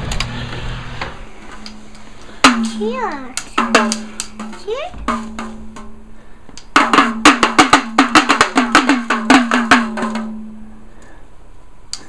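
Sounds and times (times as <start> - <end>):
pellet drum rattling: 6.7 - 10.4.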